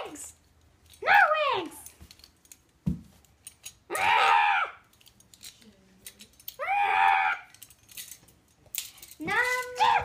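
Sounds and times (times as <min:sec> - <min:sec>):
young child screaming: 0:03.9 - 0:04.8, 0:06.6 - 0:07.5, 0:09.7 - 0:10.0.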